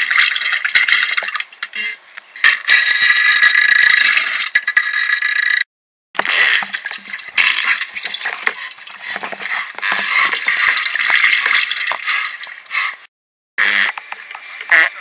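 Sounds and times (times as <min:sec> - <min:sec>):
wet spluttering gush: 0:06.2 - 0:15.0.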